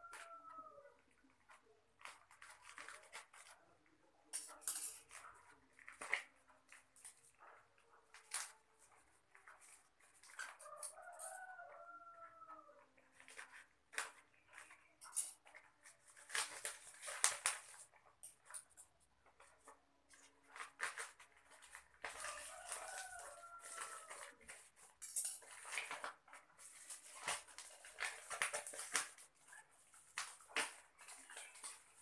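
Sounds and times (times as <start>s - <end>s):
plastic packaging crinkling: 1.4s - 3.6s, 13.1s - 32.0s.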